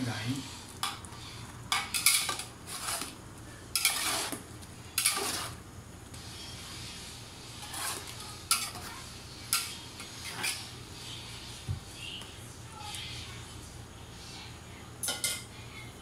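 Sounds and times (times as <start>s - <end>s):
utensils scraping metal pot: 1.7s - 4.4s, 5.0s - 5.6s, 7.6s - 8.9s, 9.5s - 10.7s.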